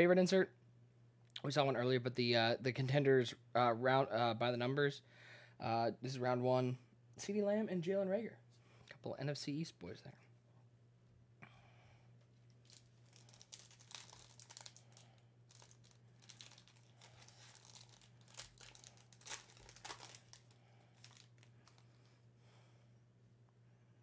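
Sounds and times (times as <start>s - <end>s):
cards rustling: 12.4s - 22.1s
foil wrapper crinkling and tearing: 12.5s - 21.9s.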